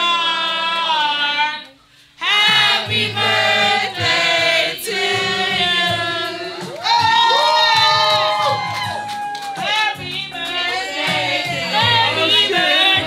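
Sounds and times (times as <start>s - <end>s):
choir singing in harmony: 2.2s - 6.7s, 10.3s - 13.0s.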